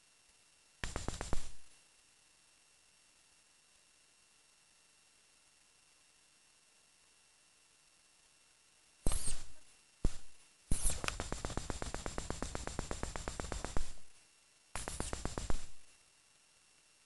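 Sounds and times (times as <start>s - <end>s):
rapid clicking: 0.8s - 1.7s, 10.1s - 14.1s, 14.8s - 15.9s
sharp single click: 9.1s - 11.6s.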